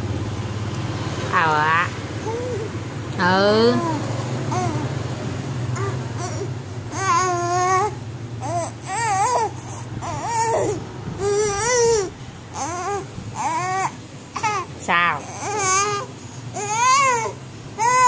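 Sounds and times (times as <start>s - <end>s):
baby cooing and babbling: 2.2s - 2.8s, 3.6s - 4.9s, 5.8s - 18.0s.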